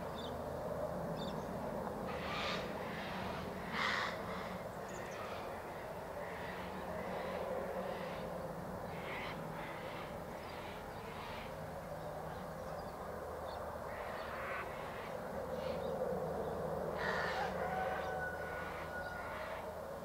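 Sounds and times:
steady background hiss: 0.0 - 20.0
crows cawing: 2.1 - 8.3, 13.9 - 15.9, 16.9 - 19.7.

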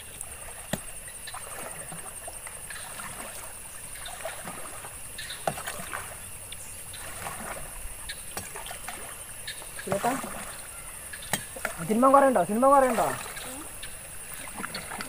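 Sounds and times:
paddle splashing in water: 0.0 - 15.0.

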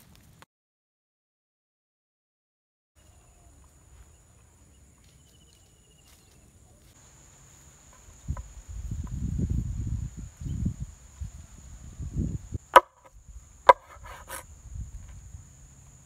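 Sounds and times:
knife chopping on wooden board: 12.8 - 13.1.

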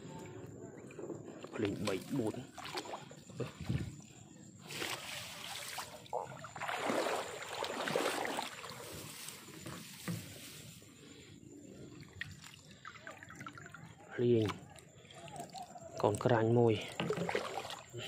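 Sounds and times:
water sloshing and dripping: 0.0 - 18.0
swishing in water: 0.8 - 9.8, 11.0 - 16.2, 16.9 - 18.0
grass rustling: 4.6 - 6.1, 7.3 - 11.2.

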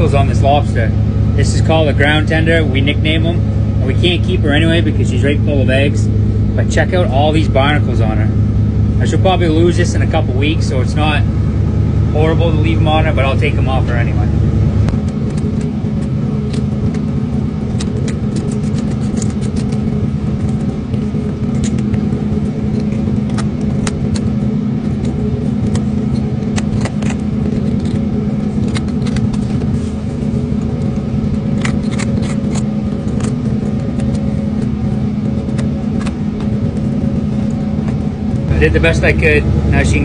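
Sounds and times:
boat engine humming: 0.0 - 40.0.

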